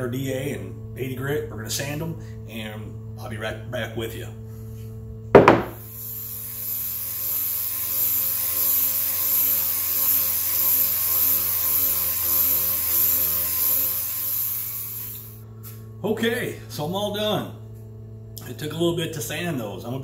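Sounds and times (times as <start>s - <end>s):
orbital sander sanding plastic: 7.1s - 14.7s.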